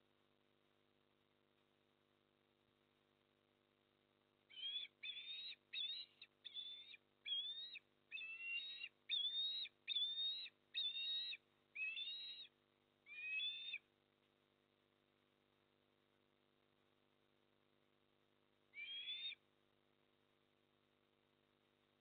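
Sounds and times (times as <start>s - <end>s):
osprey whistled calls: 4.5s - 12.5s, 13.1s - 13.9s, 18.8s - 19.4s.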